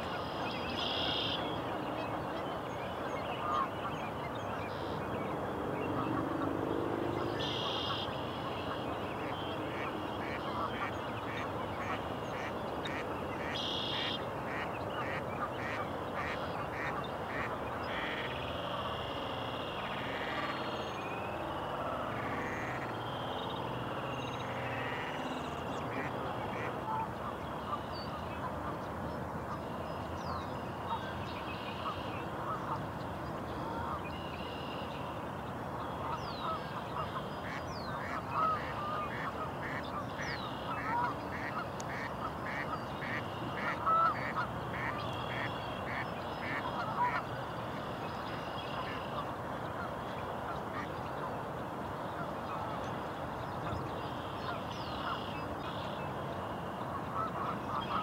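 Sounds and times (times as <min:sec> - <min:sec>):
duck calls and honks: 0:09.7 - 0:19.1, 0:36.0 - 0:47.3.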